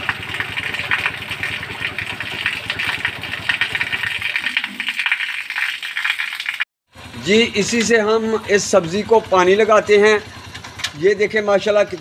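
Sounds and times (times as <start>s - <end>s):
motorcycle engine idling: 0.0s - 4.2s, 6.9s - 12.0s.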